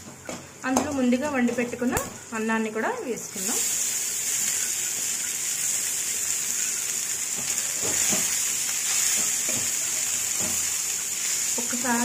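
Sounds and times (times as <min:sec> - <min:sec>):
oil sizzling in a pan: 0:03.2 - 0:12.0.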